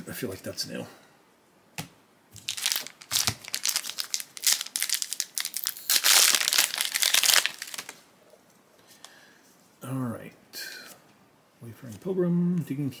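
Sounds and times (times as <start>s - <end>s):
foil wrapper crinkling: 2.4s - 8.0s.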